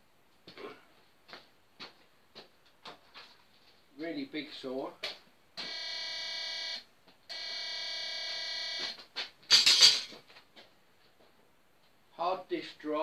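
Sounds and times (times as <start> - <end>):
metal detector alarm buzzing: 5.6 - 9.0.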